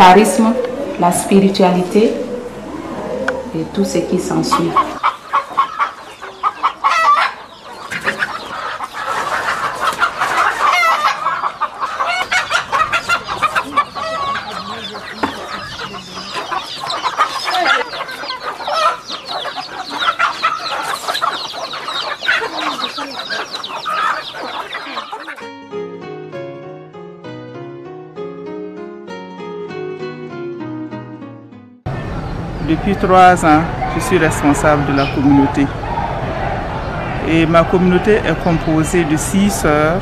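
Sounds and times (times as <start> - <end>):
chickens clucking: 0.0 - 25.5, 31.9 - 40.0.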